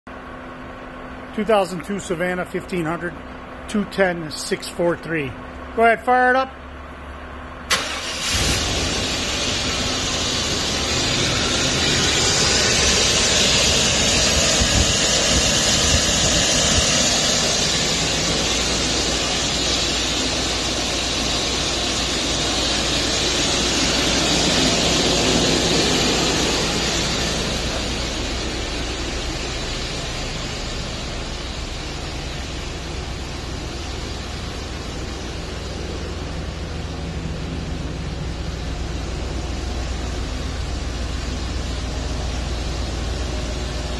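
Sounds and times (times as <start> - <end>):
van engine starting and idling: 0.2 - 43.9
strong even hiss: 7.7 - 37.6.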